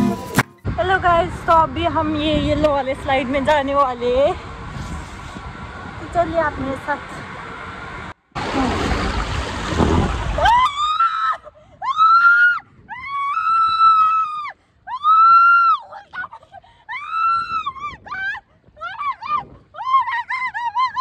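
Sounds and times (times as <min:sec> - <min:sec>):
woman screaming: 0:10.4 - 0:21.0.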